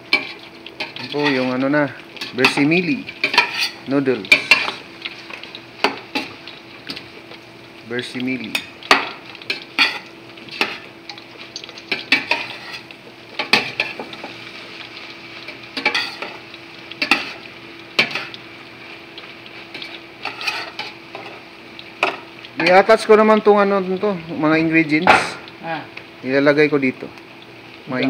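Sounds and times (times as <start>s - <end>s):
utensils scraping a metal pot: 0.1s - 1.6s, 2.2s - 4.8s, 11.6s - 14.0s, 19.8s - 21.3s.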